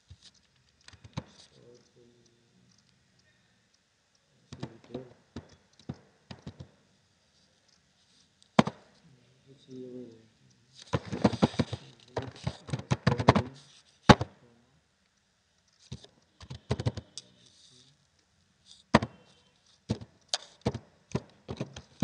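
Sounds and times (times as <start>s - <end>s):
computer keyboard typing: 5.4s - 6.7s.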